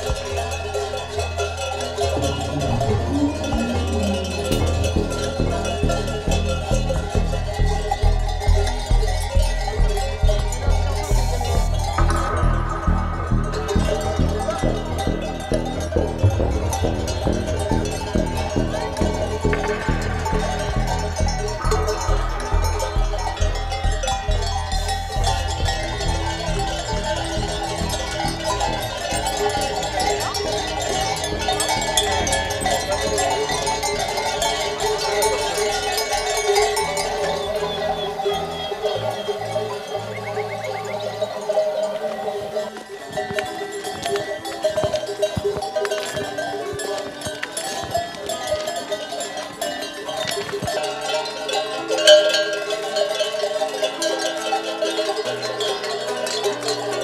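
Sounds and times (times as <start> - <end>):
sheep bells clanking: 0.0 - 57.0
low steady tone: 1.9 - 41.4.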